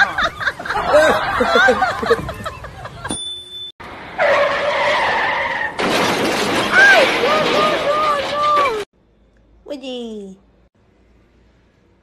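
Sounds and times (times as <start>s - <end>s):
car tyres squealing: 4.1s - 6.0s.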